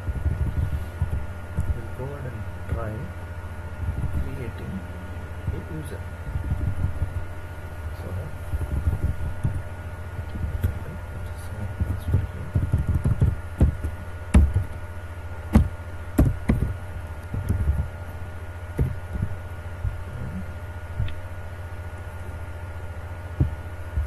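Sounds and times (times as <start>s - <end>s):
electrical hum: 0.0s - 24.0s
keyboard typing: 11.8s - 14.8s.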